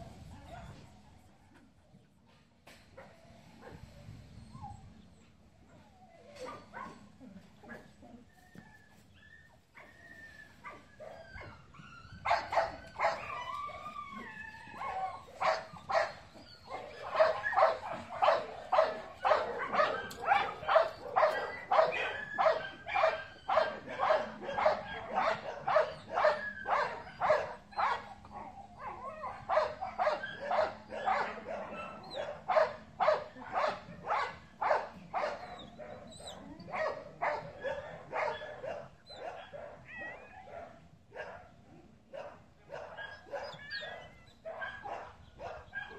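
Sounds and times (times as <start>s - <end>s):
dog barking: 6.4s - 7.0s, 12.3s - 13.2s, 14.8s - 41.5s, 42.1s - 45.9s.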